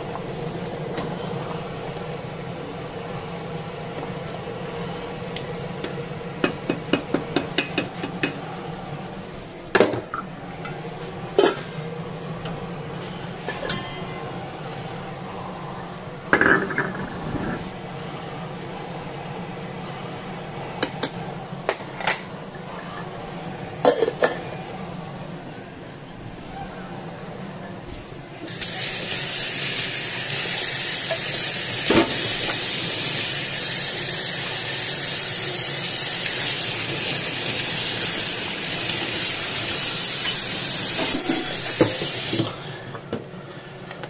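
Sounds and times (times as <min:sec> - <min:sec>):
steady low hum: 0:00.0 - 0:28.5.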